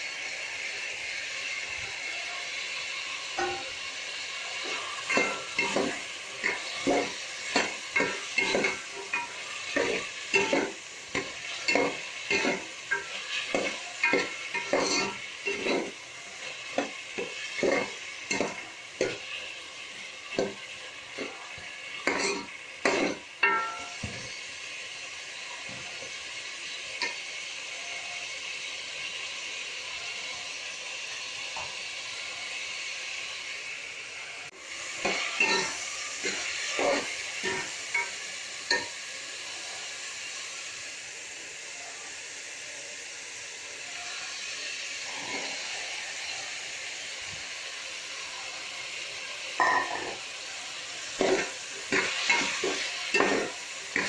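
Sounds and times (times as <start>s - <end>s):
vegetables sizzling in oil: 0.0s - 54.0s
ladle scraping a pot: 4.7s - 16.0s.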